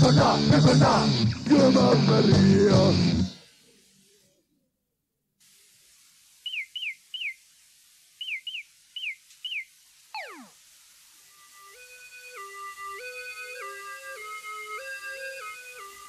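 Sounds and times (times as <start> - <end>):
tape hiss: 0.0 - 4.6, 5.4 - 16.0
short falling chirps: 8.2 - 10.6
long descending whistle: 10.2 - 10.6.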